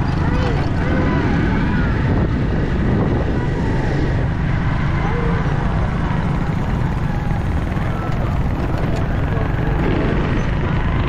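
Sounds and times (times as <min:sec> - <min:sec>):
motorcycle engine running: 0:00.0 - 0:11.0
wind on microphone: 0:00.0 - 0:11.0.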